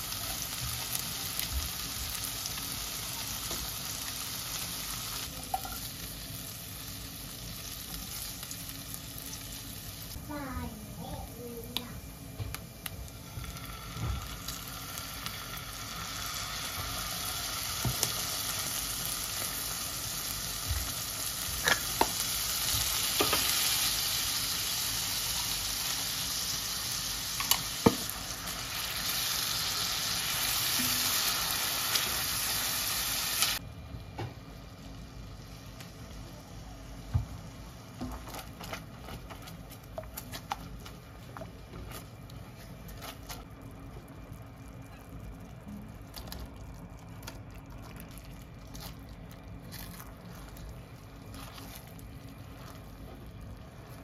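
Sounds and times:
food sizzling in oil: 0:00.0 - 0:33.6.

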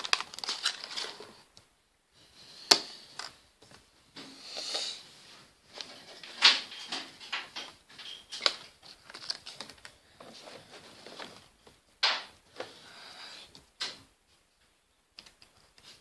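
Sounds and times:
packaging rustling: 0:00.0 - 0:01.5, 0:08.1 - 0:11.8.

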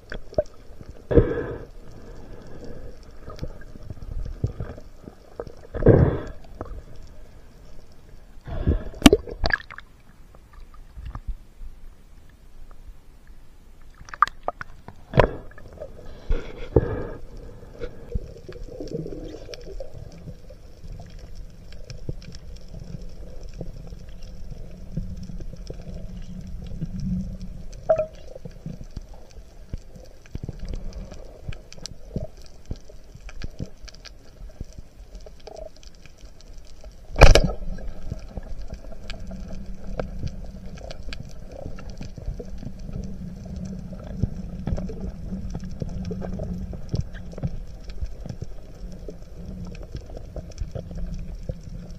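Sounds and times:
underwater rush of water: 0:00.0 - 0:11.3, 0:13.9 - 0:51.9
faint clicks: 0:16.7 - 0:51.9.

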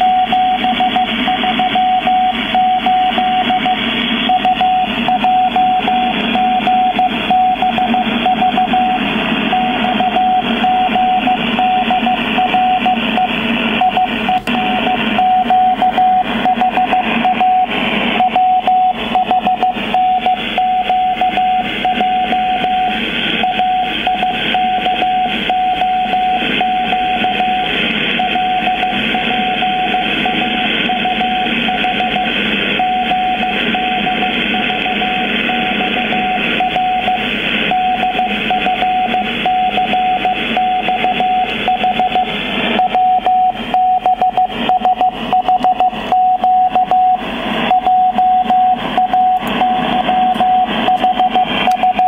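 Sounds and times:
morse code beeps: 0:00.0 - 0:52.0.

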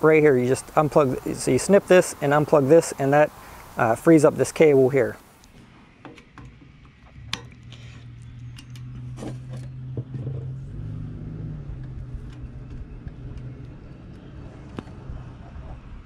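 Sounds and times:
engine running: 0:05.6 - 0:16.0.

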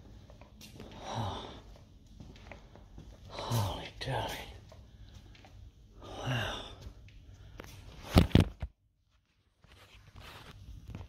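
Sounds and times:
man's wordless vocal sound: 0:03.3 - 0:04.7.

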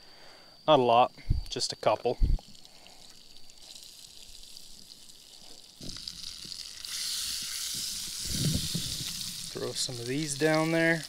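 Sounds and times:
butter sizzling in a pan: 0:02.4 - 0:11.0.

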